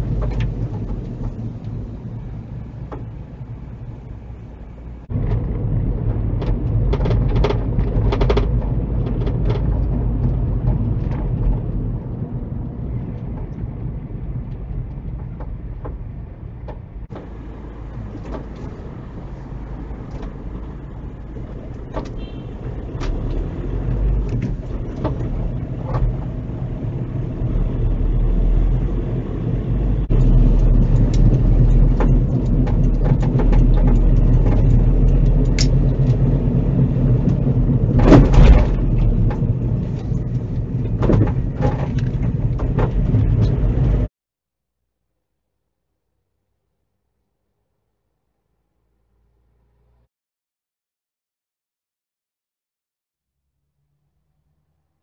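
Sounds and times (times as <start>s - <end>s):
engine and road rumble: 0.0s - 44.1s
loud thump: 38.0s - 39.0s.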